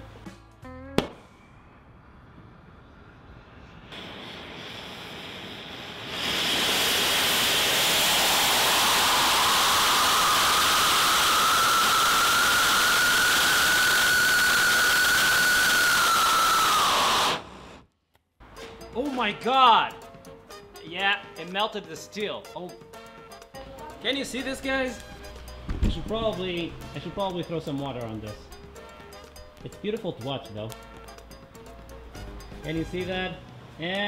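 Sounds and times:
whistling tone: 0:01.2 - 0:03.4, 0:08.3 - 0:17.5
rocket motor roaring: 0:01.3 - 0:17.9
faint hiss: 0:02.7 - 0:17.8.

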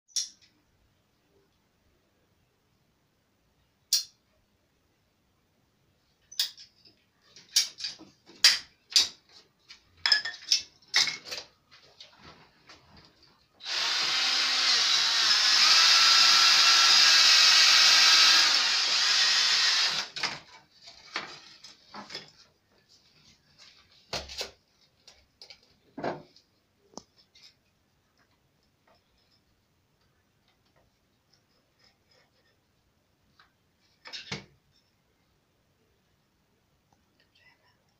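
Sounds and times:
cordless drill running: 0:13.6 - 0:20.2.

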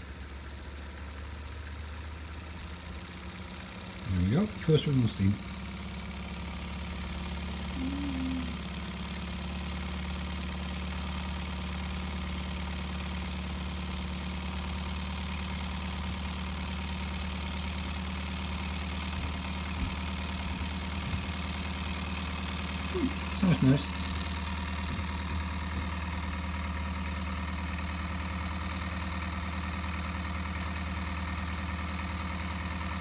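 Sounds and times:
model steam engine running: 0:00.0 - 0:19.8.

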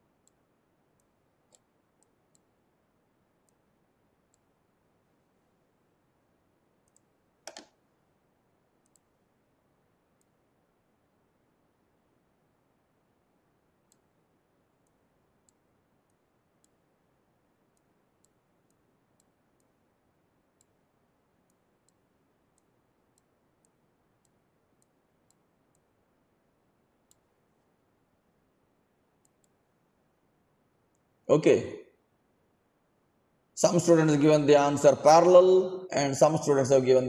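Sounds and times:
faint computer mouse clicks: 0:01.0 - 0:02.5, 0:06.8 - 0:07.8, 0:08.8 - 0:09.1, 0:13.9 - 0:14.2, 0:14.8 - 0:16.8, 0:27.0 - 0:27.3, 0:29.2 - 0:29.6.

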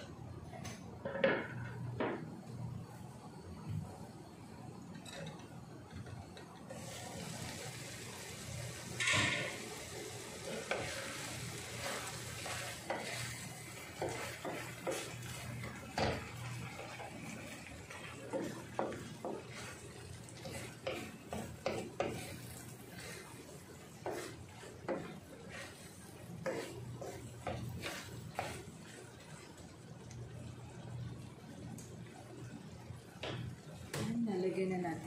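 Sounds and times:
simmering sizzle: 0:00.0 - 0:35.0
wooden spoon scraping a pan: 0:08.9 - 0:29.8.

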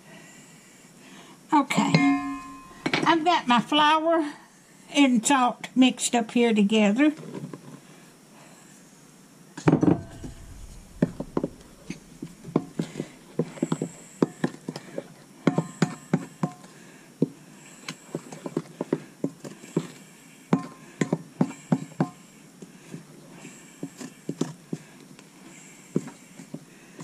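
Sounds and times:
heavy thump: 0:09.8 - 0:13.4.

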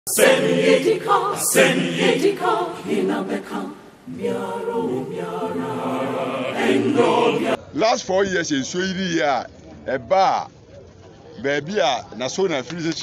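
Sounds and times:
group chanting in chorus: 0:00.1 - 0:07.6.

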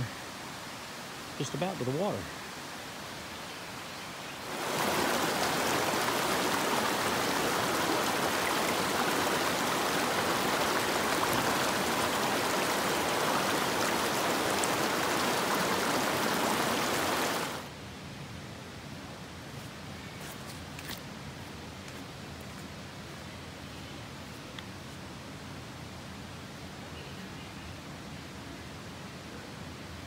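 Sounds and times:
creek rushing over rocks: 0:04.4 - 0:17.7.

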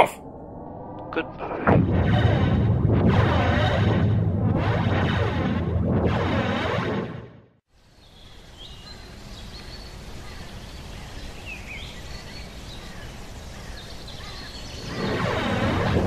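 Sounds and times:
swooping pitch sound: 0:01.7 - 0:07.4, 0:14.8 - 0:16.0.

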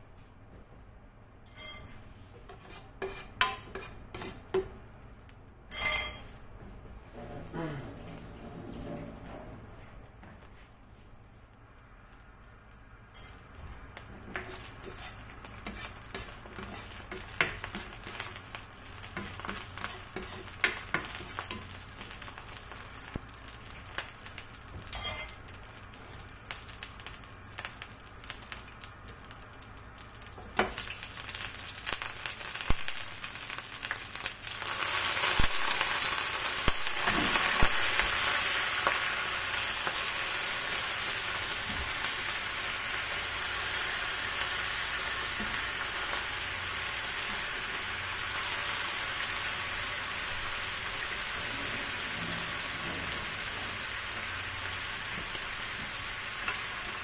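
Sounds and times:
garlic sizzling in hot oil: 0:12.0 - 0:57.0.

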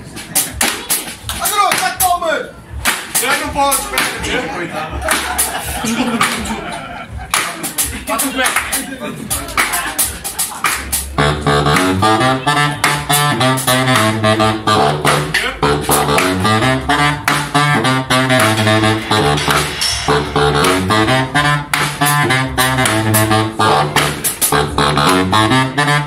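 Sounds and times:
street band with saxophones and brass: 0:00.0 - 0:04.4, 0:05.0 - 0:26.0.

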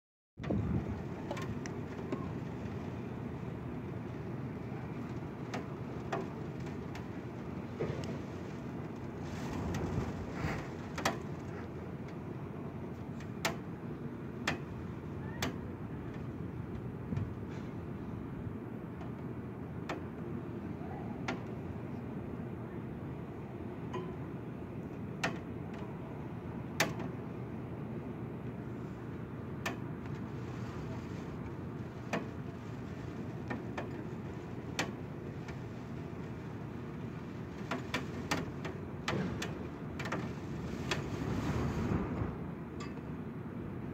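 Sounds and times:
wind and rain rushing: 0:00.4 - 0:20.7, 0:29.0 - 0:43.9
raindrops tapping near window: 0:01.0 - 0:13.7, 0:29.6 - 0:41.2.

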